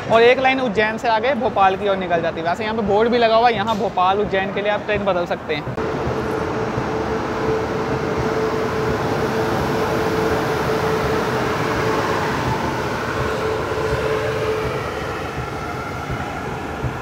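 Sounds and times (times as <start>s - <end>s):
train wheels rumbling on rails: 0.0s - 17.0s
steady hum: 4.8s - 17.0s.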